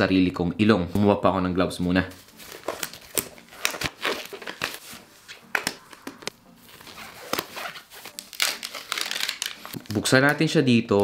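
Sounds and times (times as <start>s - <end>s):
disposable gloves crinkling: 2.1s - 10.4s.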